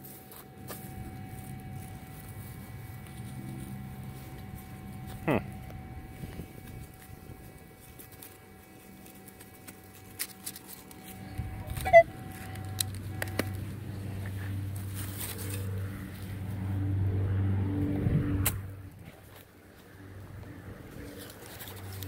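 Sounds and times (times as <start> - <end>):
low engine-like rumble: 0.0 - 22.0
metal detector electronic tone: 11.0 - 13.6.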